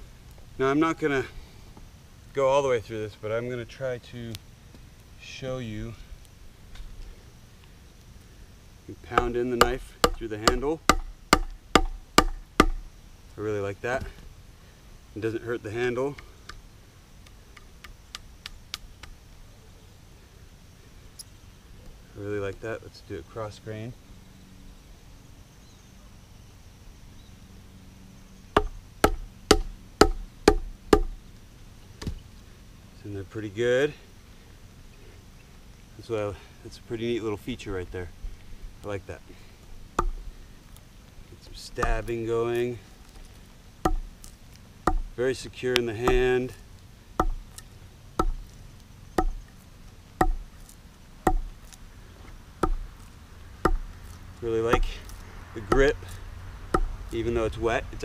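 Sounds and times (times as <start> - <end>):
wooden baton knocking knife: 49.2 - 49.4
knife stabbing into log: 54.7 - 56.0.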